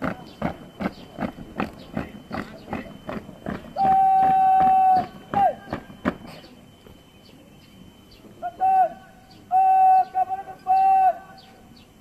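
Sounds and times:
boots marching in step: 0.0s - 6.4s
person shouting drill command: 3.8s - 5.8s, 8.4s - 11.4s.

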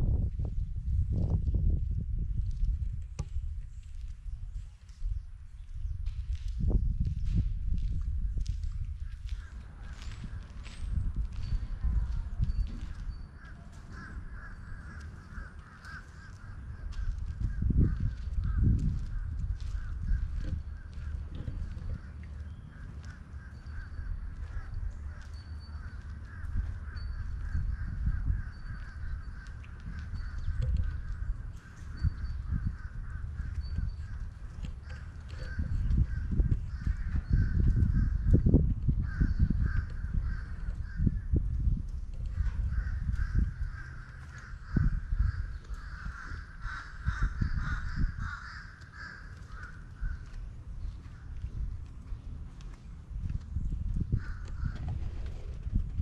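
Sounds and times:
wind on microphone: 0.0s - 56.0s
birds calling: 12.4s - 38.4s, 42.3s - 53.1s.

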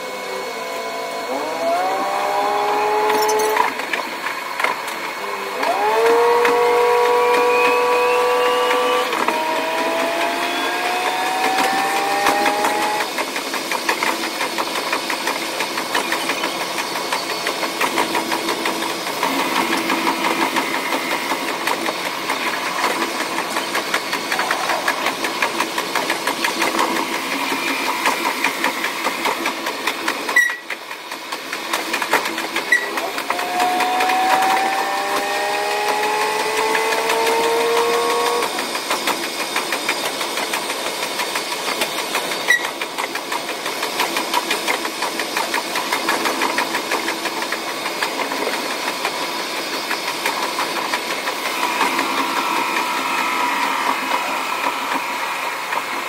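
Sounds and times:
diesel railcar engine running: 0.0s - 56.0s
fast clicking: 11.4s - 34.7s, 36.0s - 52.5s.

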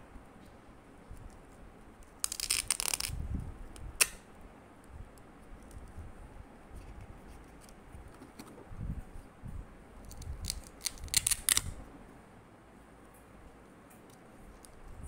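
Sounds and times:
crackling rasp of laminated labels: 2.1s - 3.2s, 10.0s - 11.7s.

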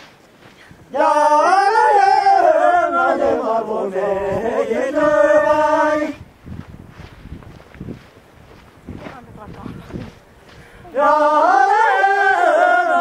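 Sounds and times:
voices singing a dance song: 0.8s - 6.3s, 10.8s - 13.0s.

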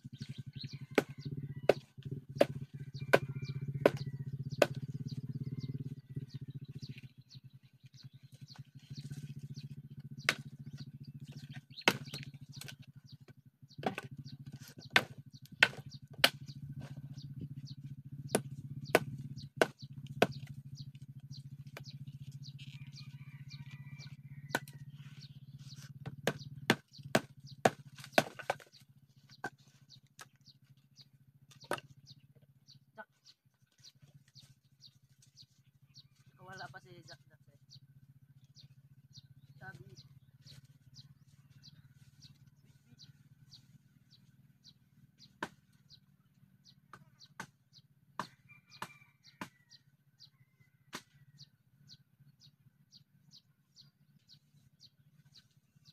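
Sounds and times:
knife chopping dry branches: 0.1s - 5.3s, 7.9s - 13.2s, 13.8s - 22.8s, 24.5s - 32.2s, 45.2s - 46.0s, 46.9s - 49.6s, 50.9s - 51.2s.

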